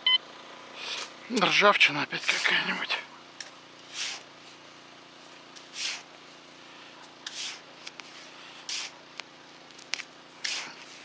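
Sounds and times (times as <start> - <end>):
trowel scooping sand: 3.9 - 4.3, 5.6 - 6.1, 7.2 - 9.0, 10.4 - 11.0.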